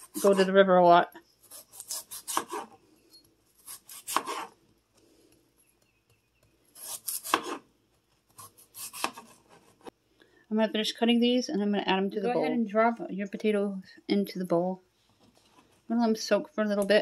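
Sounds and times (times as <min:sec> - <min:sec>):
knife slicing potatoes on board: 0:01.5 - 0:02.7, 0:03.6 - 0:04.6, 0:06.8 - 0:07.7, 0:08.3 - 0:09.9.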